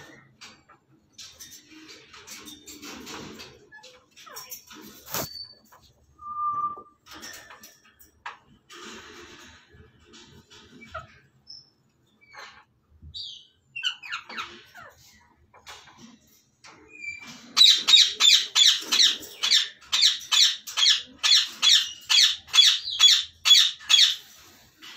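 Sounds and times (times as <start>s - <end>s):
parrots chirping softly: 0.0s - 24.9s
parrots squawking: 17.6s - 24.2s.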